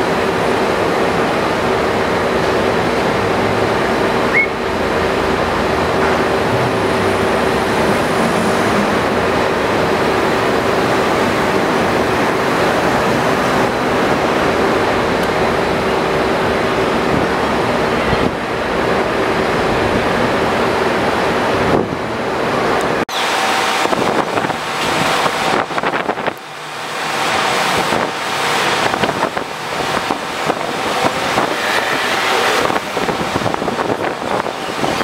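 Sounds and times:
rushing outdoor noise: 0.0s - 35.0s
low hum: 3.7s - 12.6s.

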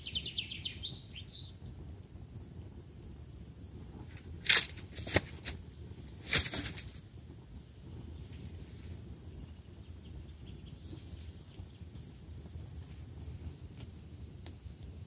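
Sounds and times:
campfire crackling: 0.0s - 15.0s
low hiss: 0.0s - 15.0s.

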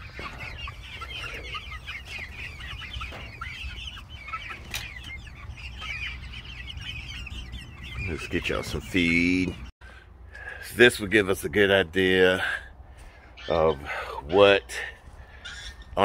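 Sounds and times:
young chickens clucking and cheeping: 0.0s - 16.0s.

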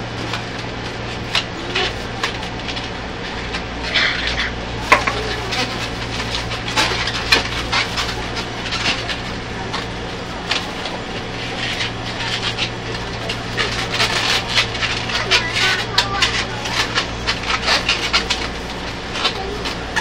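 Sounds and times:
low hum of train carriage: 0.0s - 20.0s
balloons squeaking while twisted: 13.3s - 20.0s.

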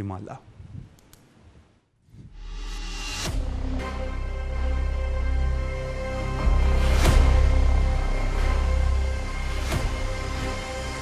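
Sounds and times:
electronic theme music: 2.8s - 11.0s.

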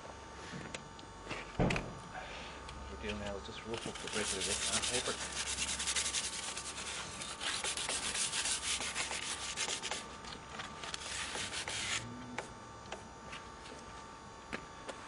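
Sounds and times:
sandpaper rubbing on grip: 3.8s - 10.1s, 11.0s - 12.0s.

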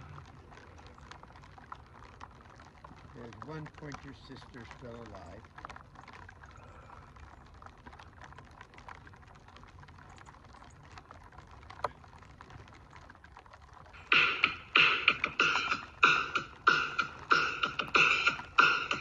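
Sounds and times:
freezing rain ticking on ice: 0.0s - 19.0s
loud music with a beat: 14.0s - 19.0s.

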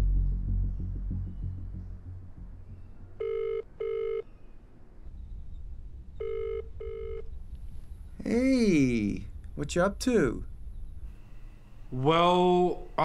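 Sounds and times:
telephone ringback tone: 3.2s - 4.2s, 6.2s - 7.3s.

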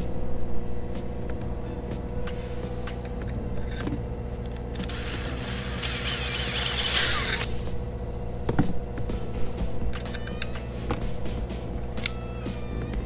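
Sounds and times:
power tool cutting fiberglass: 4.8s - 7.5s.

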